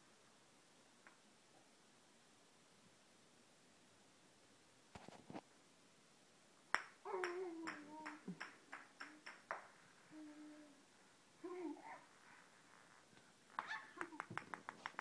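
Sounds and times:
ball bouncing on tile floor: 0:06.7 - 0:09.7, 0:13.6 - 0:15.0
baby humming: 0:10.0 - 0:10.8
baby squealing and babbling: 0:11.4 - 0:12.2, 0:13.6 - 0:14.2.

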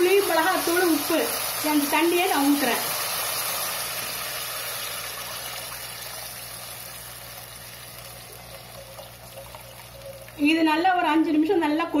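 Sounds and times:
masala sizzling: 0:00.0 - 0:11.0
liquid pouring and splashing: 0:02.5 - 0:10.4.

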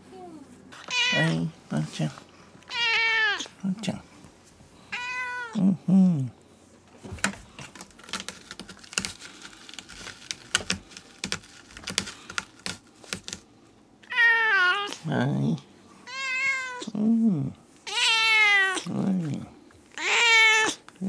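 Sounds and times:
cat meowing: 0:00.8 - 0:01.5, 0:02.7 - 0:03.5, 0:04.9 - 0:05.6, 0:14.0 - 0:15.0, 0:16.0 - 0:16.9, 0:17.8 - 0:18.9, 0:20.0 - 0:20.8
rustling: 0:06.9 - 0:13.5.

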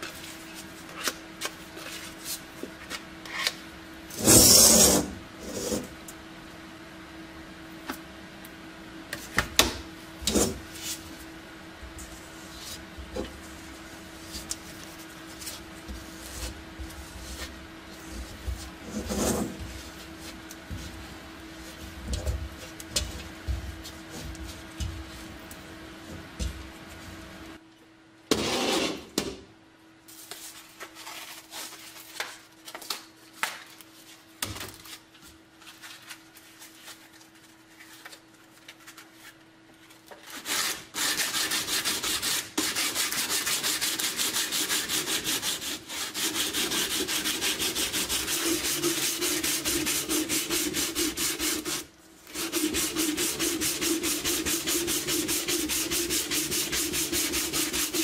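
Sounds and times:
brush scrubbing metal: 0:40.4 - 0:58.0
sanding sponge rubbing metal: 0:40.4 - 0:58.0.

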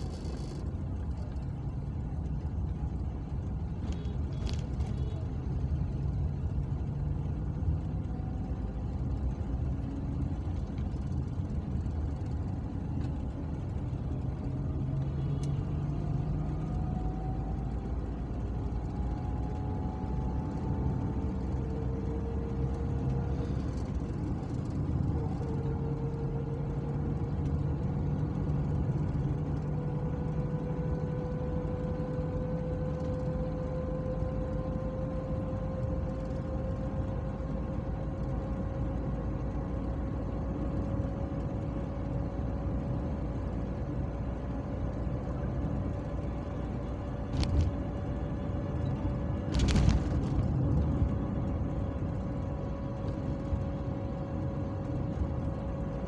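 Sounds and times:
car engine and road noise: 0:00.0 - 0:56.0.

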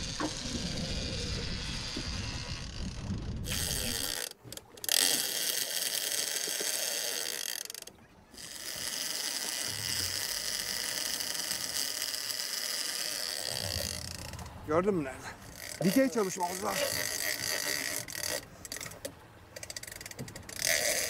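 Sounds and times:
fishing reel ratcheting buzz: 0:00.0 - 0:14.5, 0:15.5 - 0:19.0, 0:19.6 - 0:21.0.

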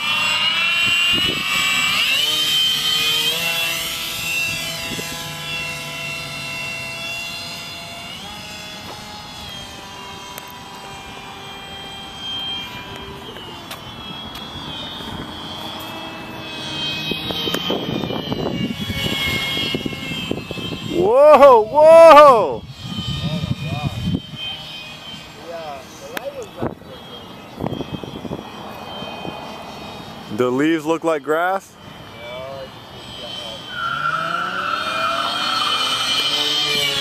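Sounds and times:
electric motor and propeller whining: 0:00.0 - 0:37.0.

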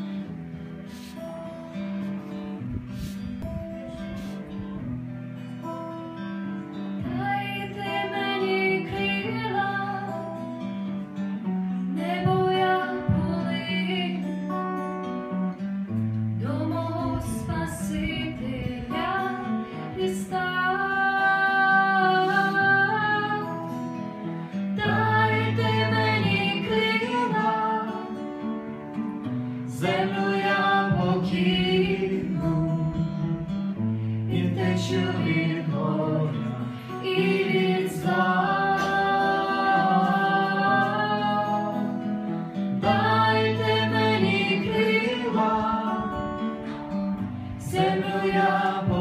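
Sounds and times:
acoustic guitar strumming: 0:00.0 - 0:49.0
woman singing: 0:07.0 - 0:10.5, 0:11.9 - 0:14.5, 0:16.4 - 0:23.8, 0:24.8 - 0:28.2, 0:29.7 - 0:33.4, 0:34.3 - 0:42.2, 0:42.8 - 0:46.7, 0:47.6 - 0:49.0.

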